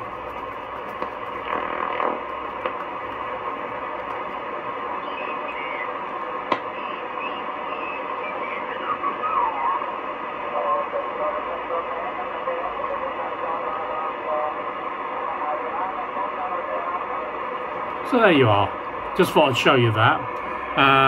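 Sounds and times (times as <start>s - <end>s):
radio band hiss: 0.0s - 21.0s
faint sliding whistling tones: 6.7s - 8.0s.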